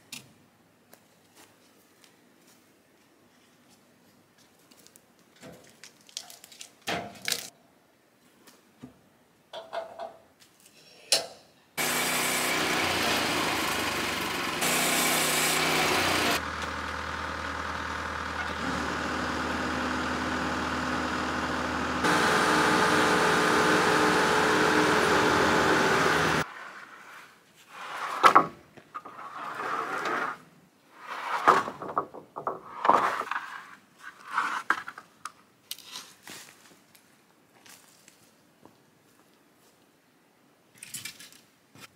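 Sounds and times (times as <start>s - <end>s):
loader engine running: 11.8s - 26.4s
wooden boards clattering: 31.4s - 33.4s.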